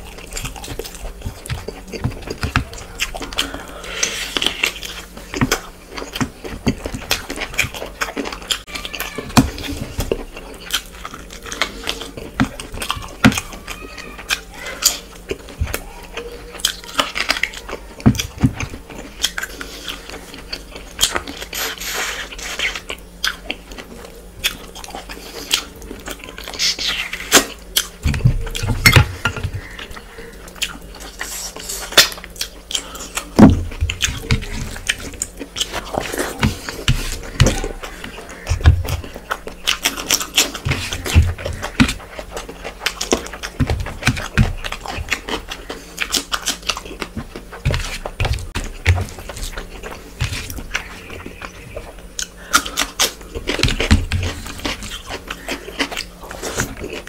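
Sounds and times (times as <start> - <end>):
wet chewing and lip-smacking: 0.0 - 57.0.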